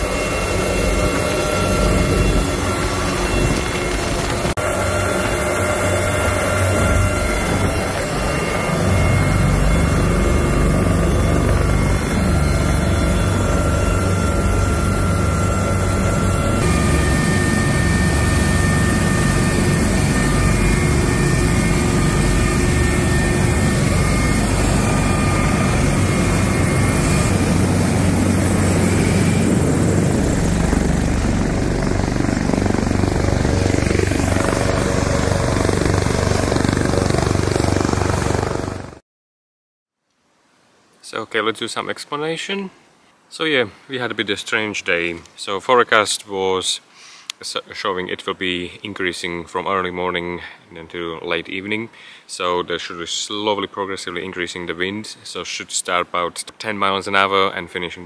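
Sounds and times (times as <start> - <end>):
helicopter turbine and rotor noise: 0.0 - 39.0.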